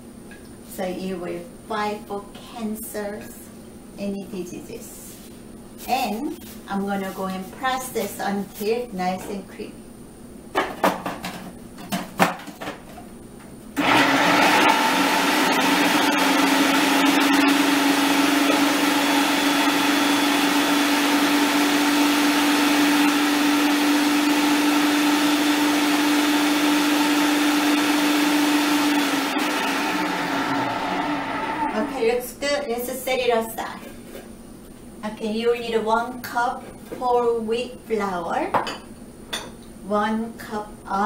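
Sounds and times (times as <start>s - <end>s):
food processor motor hum: 13.8s - 32.0s.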